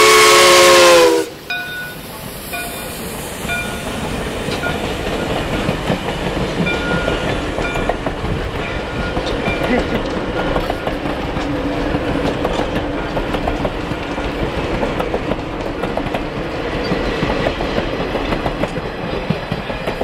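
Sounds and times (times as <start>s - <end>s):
train wheels clattering on rails: 1.5s - 20.0s.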